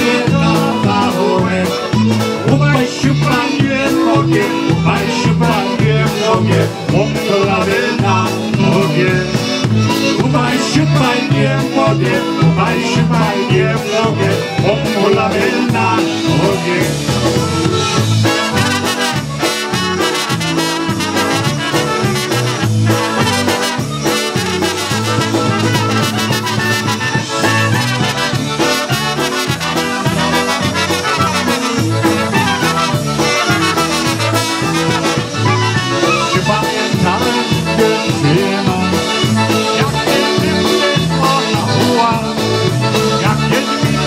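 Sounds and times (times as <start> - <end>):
bouncing bass beat: 0.0 - 44.0
polka band playing: 0.0 - 44.0
trumpets playing melody: 15.8 - 44.0.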